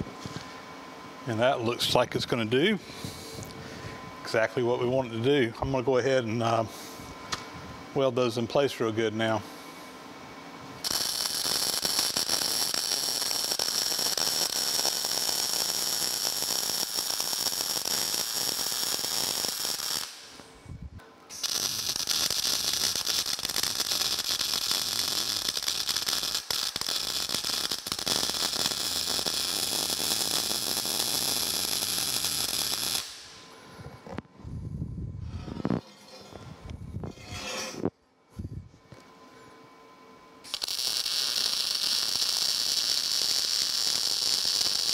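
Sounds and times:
arc welding crackling sizzle: 0:10.6 - 0:20.6, 0:21.3 - 0:34.3, 0:40.4 - 0:44.9.

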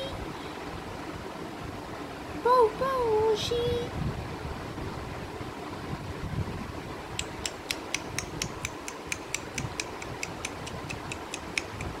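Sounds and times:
rapid sharp clicks: 0:07.2 - 0:12.0.

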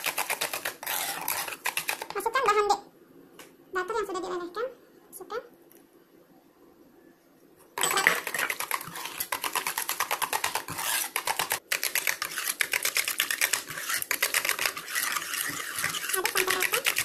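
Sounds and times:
whisk clicking against metal pan: 0:08.0 - 0:17.0.

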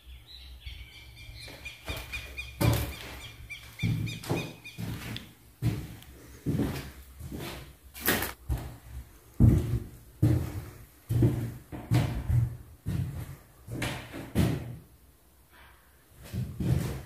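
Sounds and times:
footsteps walking indoors: 0:00.7 - 0:15.0, 0:16.1 - 0:17.0.

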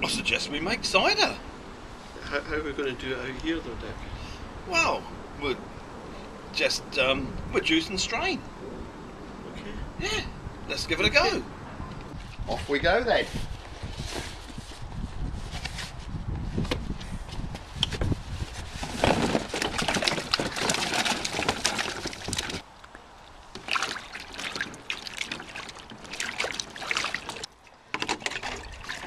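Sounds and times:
apples splashing in water: 0:19.4 - 0:29.0
trickling water: 0:19.5 - 0:29.0.

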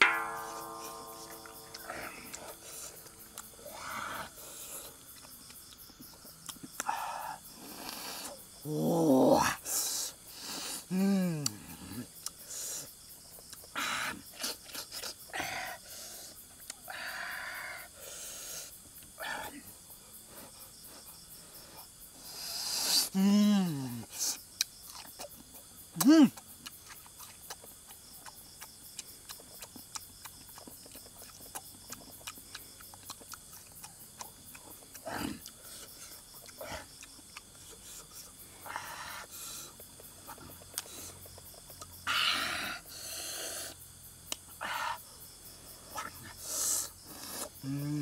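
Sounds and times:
insects chirping: 0:00.0 - 0:48.0
mouth clicks: 0:06.4 - 0:08.4, 0:26.0 - 0:28.4
person chewing with crunches: 0:24.6 - 0:38.8, 0:39.8 - 0:42.0
person biting and chewing: 0:29.0 - 0:35.6.

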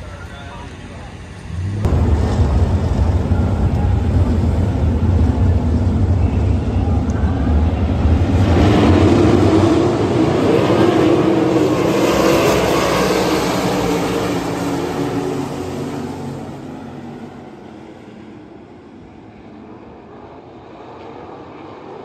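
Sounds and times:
racing car engines: 0:00.0 - 0:22.0.

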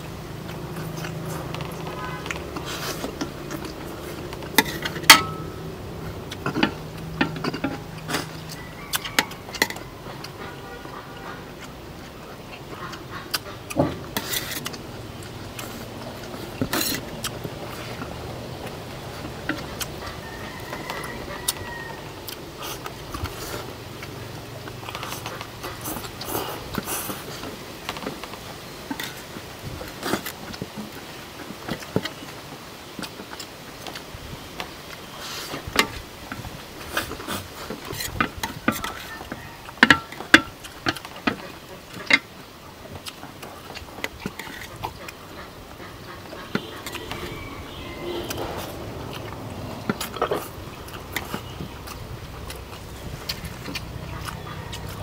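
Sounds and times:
utensils clattering on plates: 0:04.4 - 0:05.7.

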